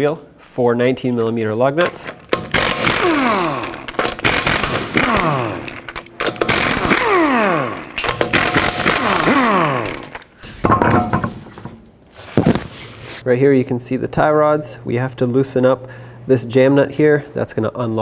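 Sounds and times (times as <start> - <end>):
pneumatic impact wrench: 1.8 - 10.4.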